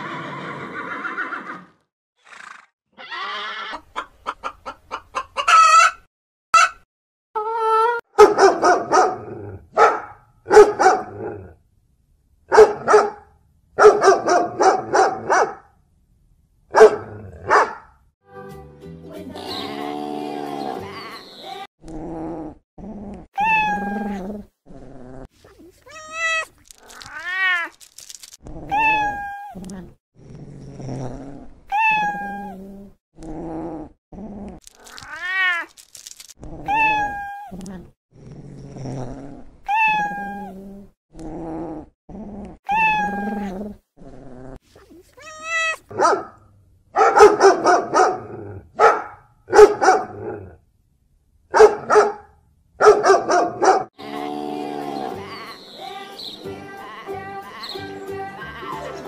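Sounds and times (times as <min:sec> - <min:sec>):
cat meowing: 0:23.4 - 0:24.3, 0:25.8 - 0:27.8, 0:28.7 - 0:29.7, 0:31.7 - 0:32.6, 0:34.8 - 0:35.7, 0:36.6 - 0:37.7, 0:39.7 - 0:40.6, 0:42.7 - 0:43.6, 0:45.1 - 0:45.9.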